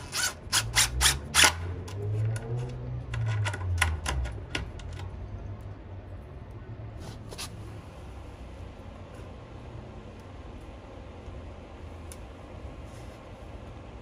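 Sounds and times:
impact driver driving screws: 0:00.0 - 0:01.7.

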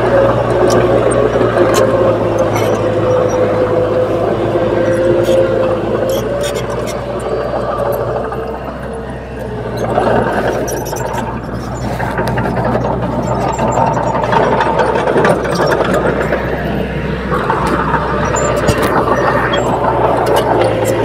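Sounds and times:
bulldozer diesel engine under load: 0:00.0 - 0:21.0
clanks from tracks and rocks: 0:09.8 - 0:21.0.

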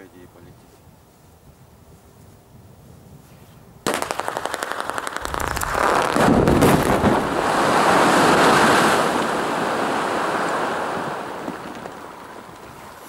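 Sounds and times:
crackle of detonations: 0:03.9 - 0:12.8
blast rumble: 0:05.2 - 0:09.2.

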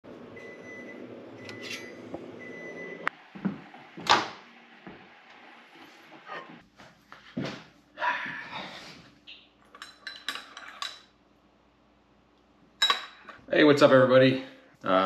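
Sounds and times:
plate clinking: 0:12.8 - 0:13.4.

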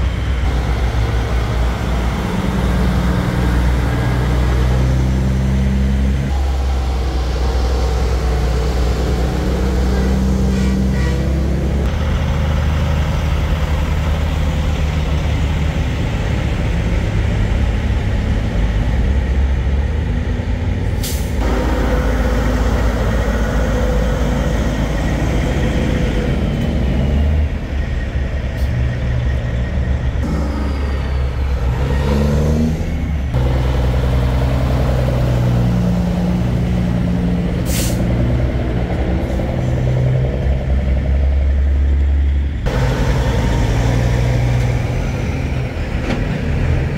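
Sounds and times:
diesel truck engines: 0:00.0 - 0:46.9
truck air brake hiss: 0:21.0 - 0:21.5, 0:37.6 - 0:38.2.

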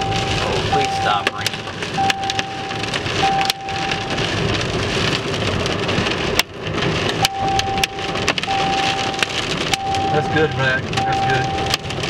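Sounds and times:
electronic beep tone: 0:00.0 - 0:01.3, 0:02.0 - 0:04.1, 0:07.3 - 0:09.2, 0:09.8 - 0:11.8
rain pelting car windshield: 0:00.0 - 0:12.0.

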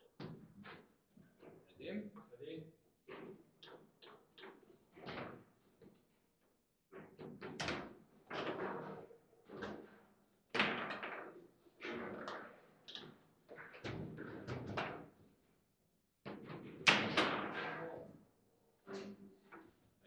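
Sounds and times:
foosball ball and rods clacking: 0:06.9 - 0:15.2, 0:16.3 - 0:18.1.

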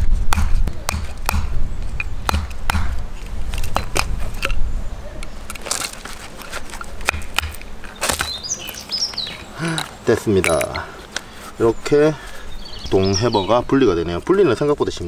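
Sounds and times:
wood knocking on metal pin: 0:07.0 - 0:08.4.

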